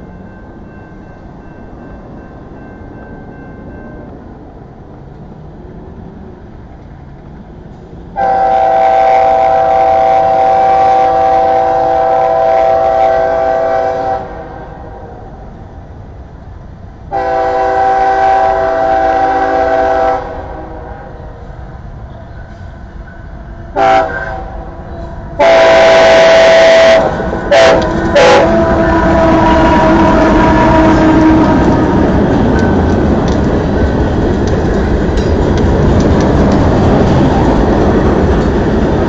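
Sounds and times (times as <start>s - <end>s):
low train rumble: 0.0s - 39.0s
train air horn blasts: 8.2s - 15.2s, 17.1s - 21.4s, 23.7s - 32.2s.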